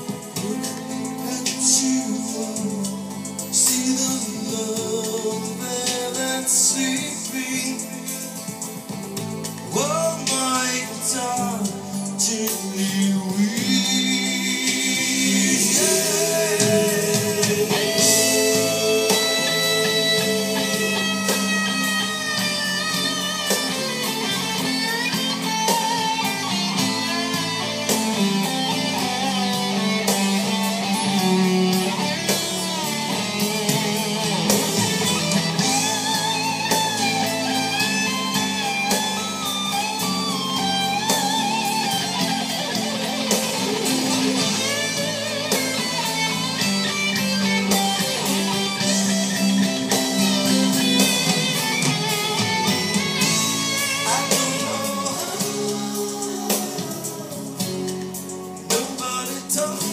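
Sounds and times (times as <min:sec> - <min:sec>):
electric guitar lead with bending notes: 0:00.0 - 0:59.9
live rock band: 0:00.0 - 0:59.9.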